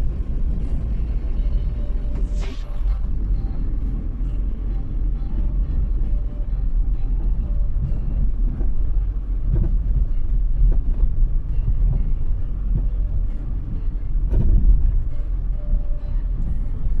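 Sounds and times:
car engine and tyres rumbling: 0.0s - 17.0s
car bump: 14.2s - 15.2s.

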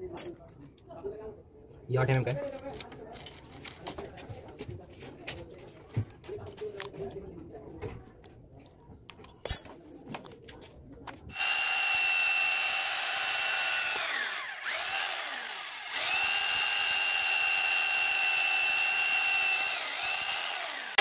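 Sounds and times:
electric drill boring into wood: 11.3s - 21.0s
drill bit clicking into chuck: 19.3s - 21.0s.

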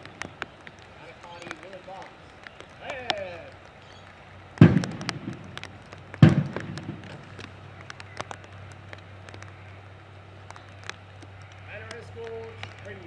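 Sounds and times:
faint clicks: 0.0s - 13.0s
sharp rifle strikes with echo: 4.6s - 7.2s.

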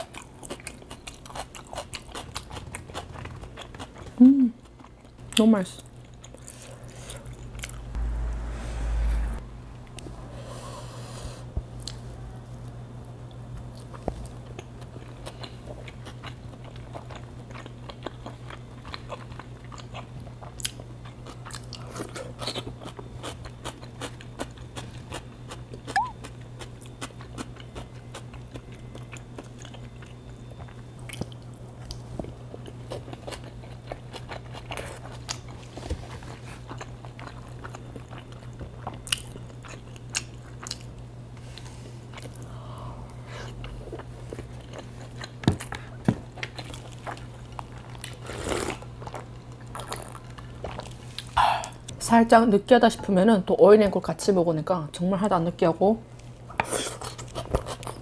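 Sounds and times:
steady low hum: 0.0s - 58.0s
person chewing with mouth clicks: 13.8s - 32.0s.

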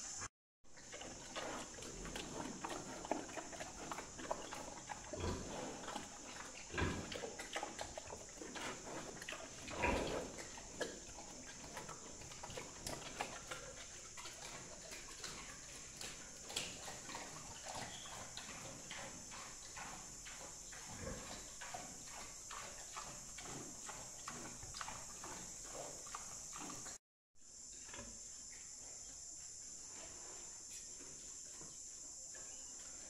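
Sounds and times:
pig chewing and crunching: 0.8s - 27.0s.

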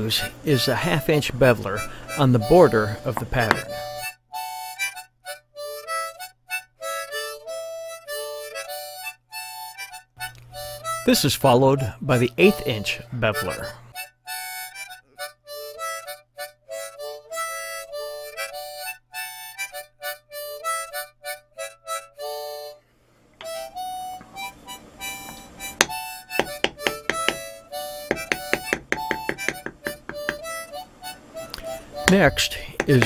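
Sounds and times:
harmonica melody: 0.0s - 33.0s
mallet tapping leather stamping tool: 3.2s - 3.7s, 25.3s - 30.6s, 32.0s - 33.0s.

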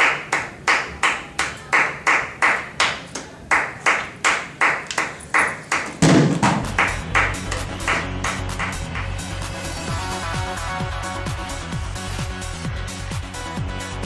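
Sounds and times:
hand clapping: 0.0s - 9.4s.

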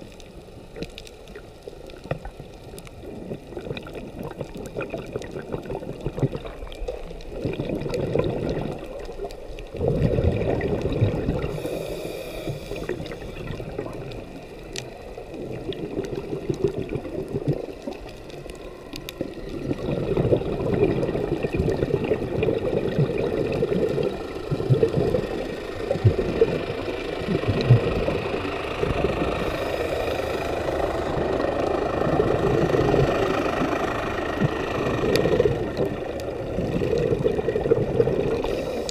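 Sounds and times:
underwater bubbles gurgling: 0.0s - 38.9s
regulator hiss: 11.4s - 13.5s, 25.3s - 36.8s, 38.4s - 38.9s.

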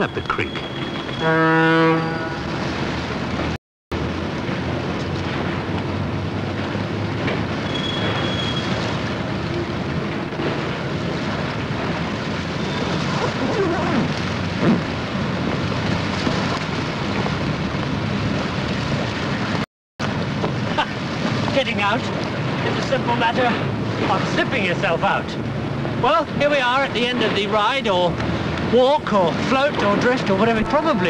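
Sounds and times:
wind: 0.0s - 31.0s
river water rushing: 2.0s - 31.0s.

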